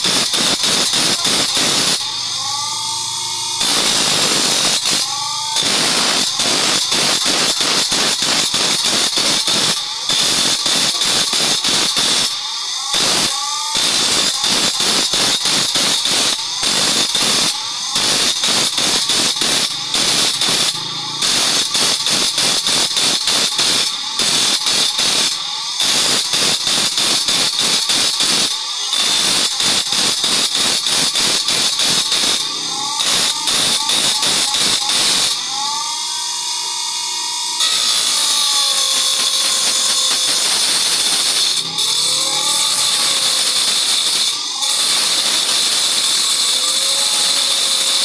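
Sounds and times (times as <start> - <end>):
grinder wheel grinding steel blade: 0.0 - 48.0.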